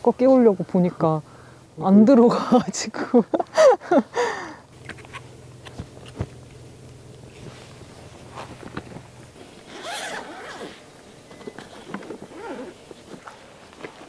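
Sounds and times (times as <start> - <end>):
zipper on fabric bag: 9.6 - 10.8, 11.8 - 12.8.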